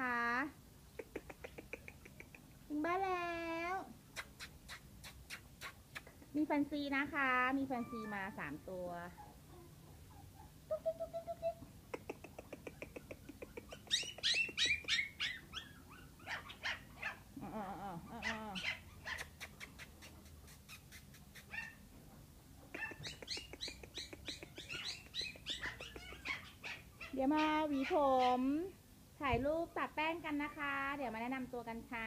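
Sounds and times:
puppies yipping and whining: 9.2s - 11.6s, 13.5s - 17.2s, 22.8s - 28.4s.

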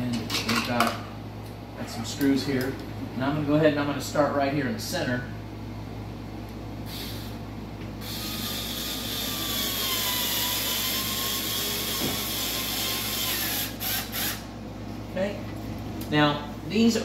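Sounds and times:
cordless screw gun motor whine: 8.0s - 14.5s.

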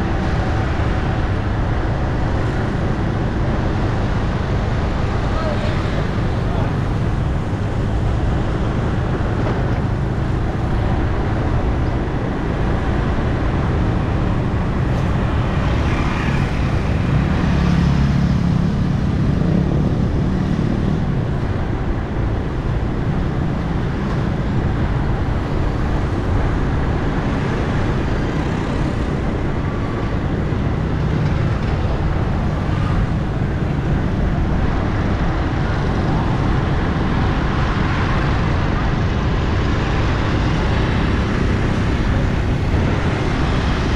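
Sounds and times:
street traffic rumble: 0.0s - 43.9s.

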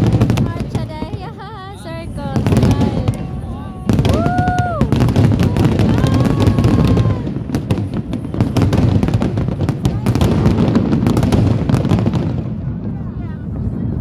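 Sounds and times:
fireworks bangs and crackles: 0.0s - 14.0s
crowd crying out: 2.8s - 7.6s.

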